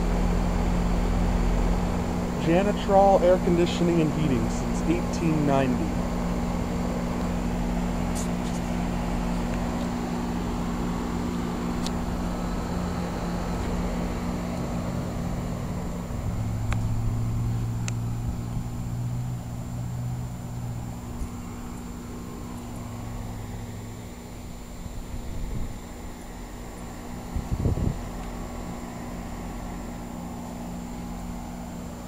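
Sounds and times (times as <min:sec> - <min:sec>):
compressor hum: 0:00.0 - 0:32.0
condenser fan rushing: 0:00.0 - 0:32.0
deeper hum: 0:00.0 - 0:32.0.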